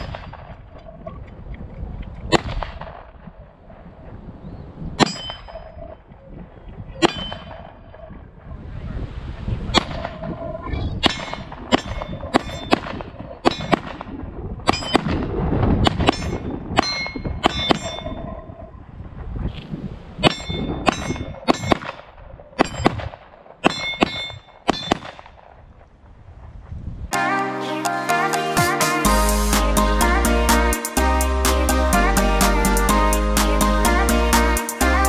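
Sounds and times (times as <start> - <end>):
steel targets clanging: 5.0 - 5.8, 7.0 - 7.7, 13.4 - 13.8, 16.0 - 18.2, 20.2 - 21.9, 23.6 - 25.1.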